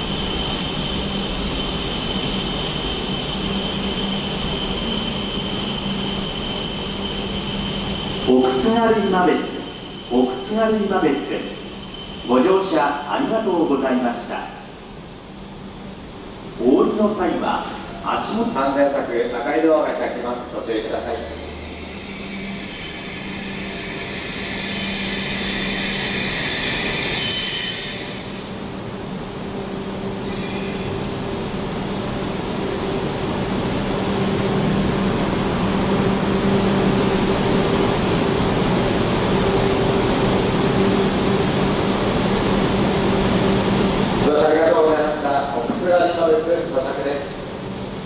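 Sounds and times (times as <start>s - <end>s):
train ventilation hum: 5.9s - 23.2s, 27.7s - 48.0s.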